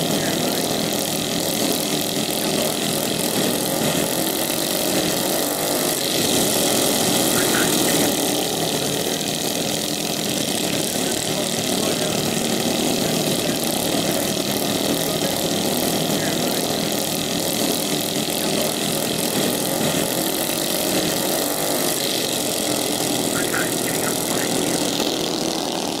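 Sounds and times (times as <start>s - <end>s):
small petrol engines running: 0.0s - 26.0s.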